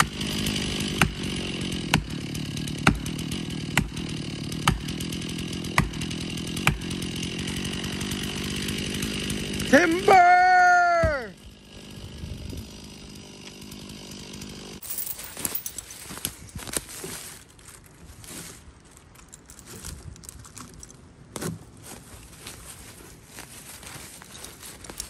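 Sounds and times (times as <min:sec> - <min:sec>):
chainsaw engine idling: 0:00.0 - 0:18.4
crunching dry leaves and twigs: 0:14.8 - 0:25.0.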